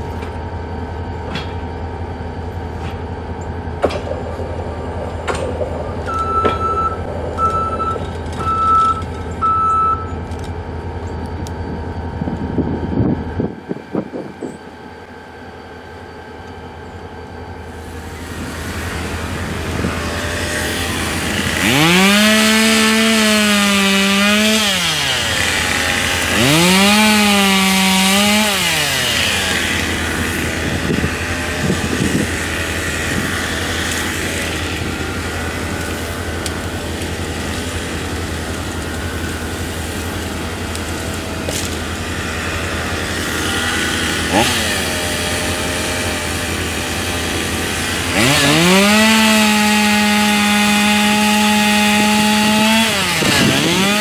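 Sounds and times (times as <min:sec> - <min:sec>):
chainsaw revving: 0:17.8 - 0:54.0.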